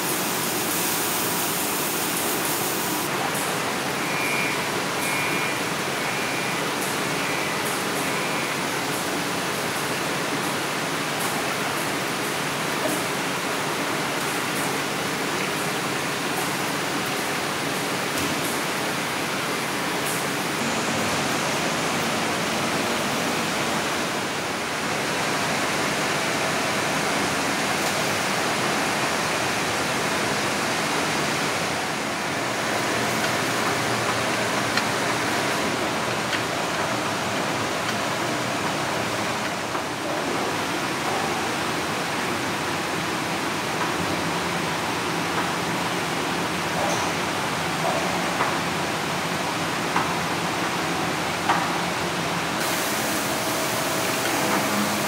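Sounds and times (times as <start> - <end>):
factory floor rushing hiss: 0.0 - 3.9, 49.4 - 55.0.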